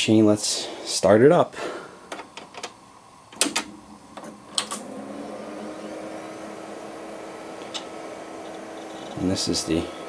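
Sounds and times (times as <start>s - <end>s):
computer fan and drive whine: 2.2s - 10.0s
power switch clicking: 7.5s - 8.7s.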